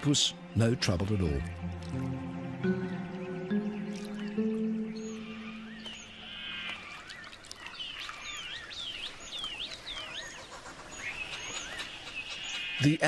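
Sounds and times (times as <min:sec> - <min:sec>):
soft background music: 0:00.0 - 0:06.6.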